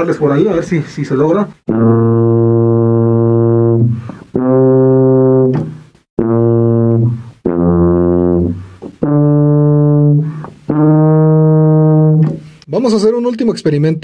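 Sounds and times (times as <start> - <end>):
tuba long held notes: 1.7 - 5.6, 6.2 - 12.2
breaths between notes: 3.9 - 4.4, 10.2 - 10.6.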